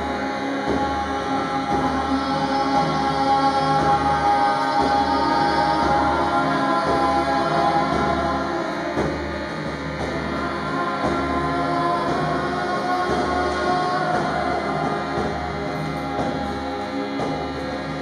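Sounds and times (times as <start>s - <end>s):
group chanting long notes: 0.0s - 18.0s.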